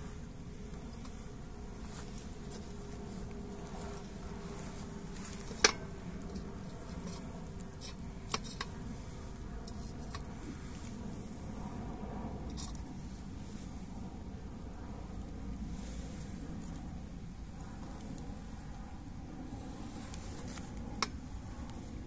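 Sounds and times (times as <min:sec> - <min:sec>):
steady low buzz: 0:00.0 - 0:22.0
twigs clicking in wood stove: 0:05.1 - 0:08.8.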